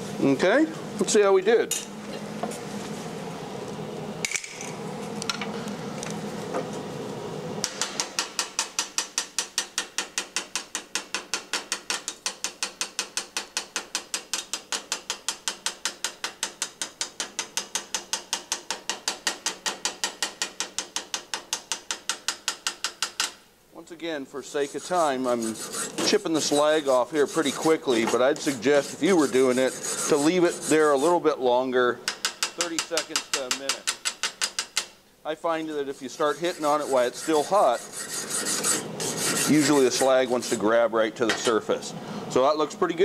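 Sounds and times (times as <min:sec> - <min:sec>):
steady hiss: 0:00.0 - 0:43.0
chipping hammer tapping metal: 0:32.0 - 0:34.9.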